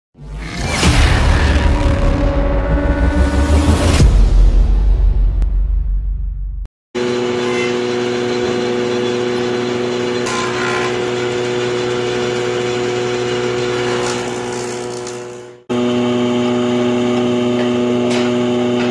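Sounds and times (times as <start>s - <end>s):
woodworking machine running: 7.0s - 18.9s.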